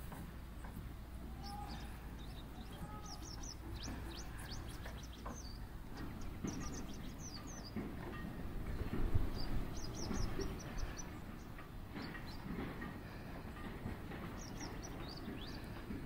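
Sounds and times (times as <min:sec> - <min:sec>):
small birds chirping: 0:00.1 - 0:16.0.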